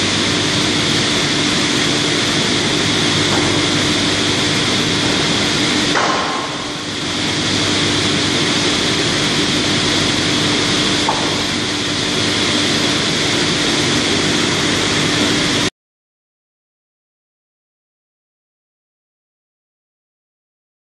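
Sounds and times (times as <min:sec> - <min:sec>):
sawmill machinery running: 0:00.0 - 0:15.7.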